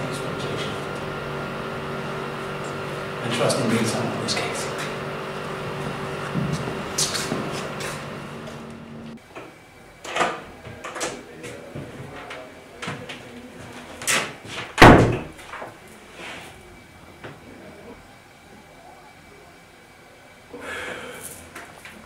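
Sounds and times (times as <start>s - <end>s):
door closing thump: 14.8s - 15.3s.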